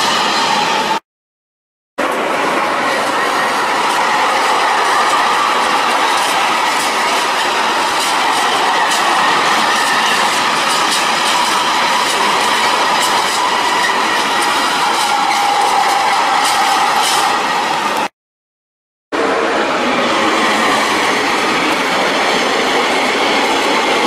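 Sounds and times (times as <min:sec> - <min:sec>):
freight train rolling past: 0:00.0 - 0:01.0, 0:02.0 - 0:18.1, 0:19.2 - 0:24.0
high wheel squeal: 0:02.8 - 0:18.1
wheels clicking over rail joints: 0:03.0 - 0:17.3.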